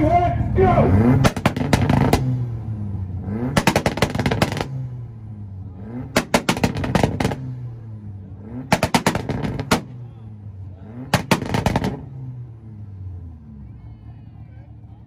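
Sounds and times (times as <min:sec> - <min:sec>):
car engine revving on limiter: 0:00.7 - 0:13.5
exhaust pops and bangs: 0:01.2 - 0:02.5, 0:03.5 - 0:04.9, 0:06.0 - 0:07.7, 0:08.6 - 0:10.1, 0:11.0 - 0:12.3.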